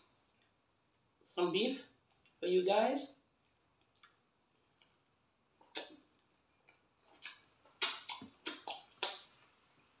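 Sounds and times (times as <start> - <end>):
people chewing with wet smacks: 2.0 - 2.4, 3.4 - 10.0.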